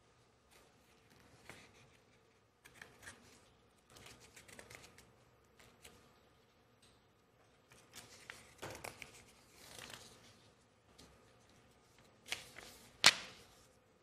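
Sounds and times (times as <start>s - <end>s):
paper rustling: 7.7s - 13.7s.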